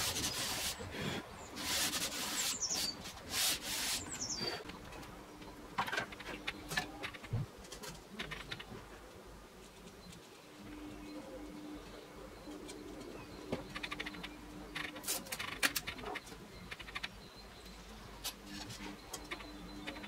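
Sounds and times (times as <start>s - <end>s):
sandpaper rasping on wood: 0.0s - 0.8s, 1.6s - 4.4s.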